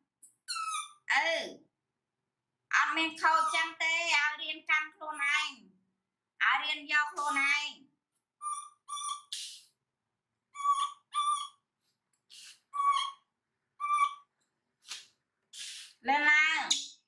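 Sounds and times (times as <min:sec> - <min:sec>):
baby monkey coo calls: 0:00.5 - 0:01.0, 0:03.4 - 0:03.7, 0:08.4 - 0:09.5, 0:10.5 - 0:11.6, 0:12.3 - 0:14.3
breathy hisses: 0:12.3 - 0:12.7, 0:14.8 - 0:16.0.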